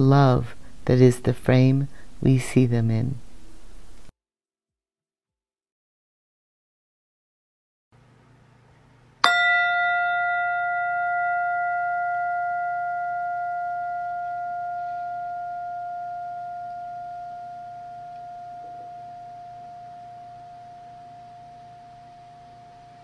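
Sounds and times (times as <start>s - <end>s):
tingsha cymbals ringing: 9.2s - 23.0s.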